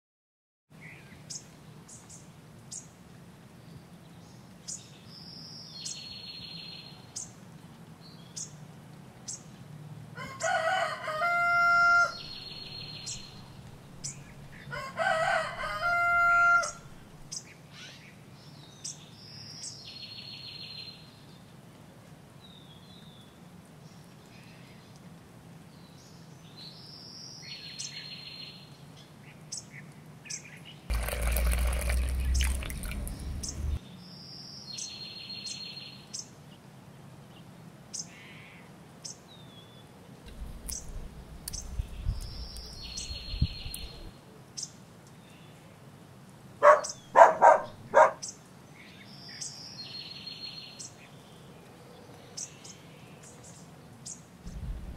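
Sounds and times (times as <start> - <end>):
rooster crowing: 10.2 - 12.4, 14.7 - 17.3
small birds chirping: 12.1 - 14.8, 25.8 - 36.3, 39.0 - 45.6, 46.6 - 54.8
faint low hum: 30.9 - 33.8, 54.4 - 54.9.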